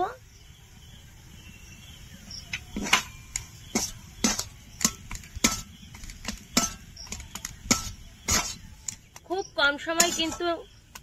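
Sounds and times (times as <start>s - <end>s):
spatula knocking and scraping a pan: 2.5s - 11.0s.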